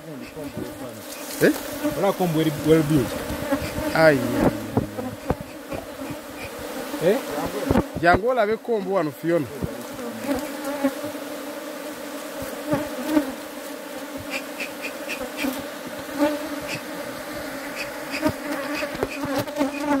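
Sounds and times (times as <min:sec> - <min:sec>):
honey bees buzzing: 0:00.0 - 0:20.0.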